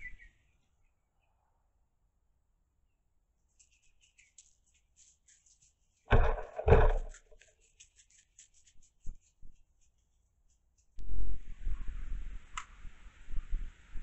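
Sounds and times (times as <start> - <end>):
faint crackling in undergrowth: 3.4 - 13.3
soft knocks: 6.1 - 7.2
loud dull thumps: 6.1 - 7.3.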